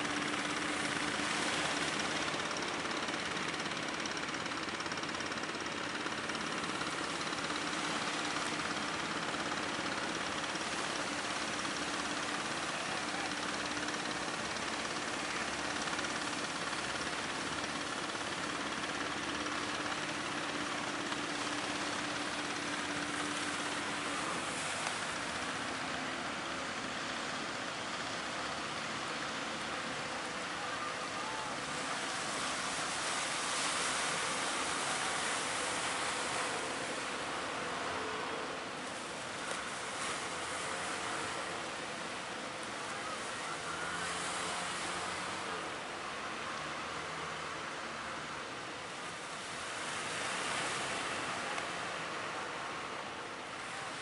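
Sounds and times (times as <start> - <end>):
boat diesel engines humming: 0.0 - 54.0
sea and wind noise: 48.3 - 54.0.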